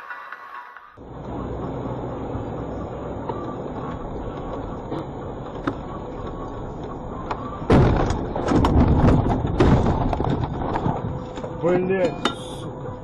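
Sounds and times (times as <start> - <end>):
road rumble inside vehicle: 1.0 - 13.0
vehicle jolting and clattering: 1.0 - 13.0
loud thud: 7.7 - 11.2.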